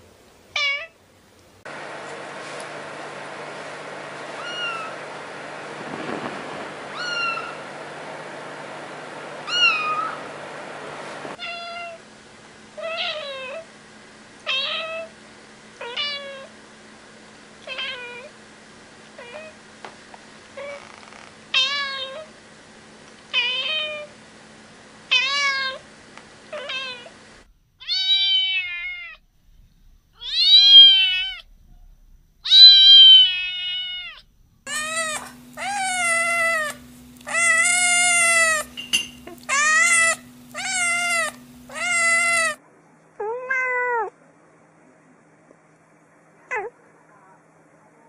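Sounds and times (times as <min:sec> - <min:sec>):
cat meowing: 0:00.6 - 0:01.0, 0:04.4 - 0:04.9, 0:06.9 - 0:07.6, 0:09.4 - 0:10.2, 0:27.8 - 0:29.2, 0:30.2 - 0:31.5, 0:32.4 - 0:42.6, 0:43.2 - 0:44.2
kitten meowing: 0:04.4 - 0:04.9, 0:06.9 - 0:07.6, 0:09.4 - 0:10.2, 0:27.8 - 0:29.2, 0:30.2 - 0:31.5, 0:32.4 - 0:42.6.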